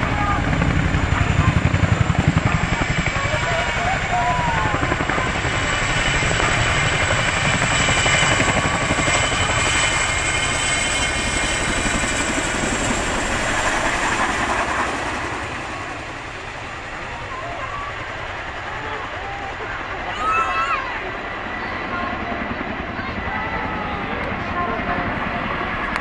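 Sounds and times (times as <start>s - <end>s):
helicopter rotor chop and whine: 0.0s - 26.0s.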